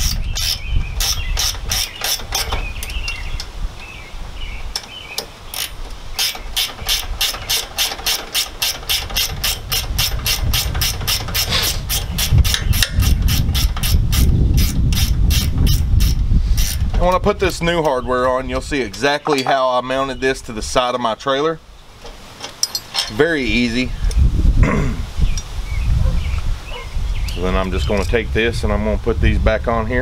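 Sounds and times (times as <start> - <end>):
socket ratchet clicking: 0.0 - 3.5, 4.7 - 16.9
low rumble of handling noise: 0.0 - 30.0.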